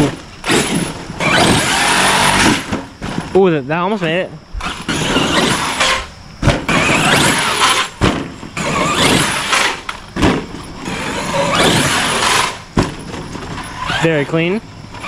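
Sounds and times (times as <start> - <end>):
electric motor whining: 0.0 - 2.8, 4.5 - 8.0, 8.6 - 10.0, 10.8 - 12.7
toy truck landing thumps: 5.3 - 13.7.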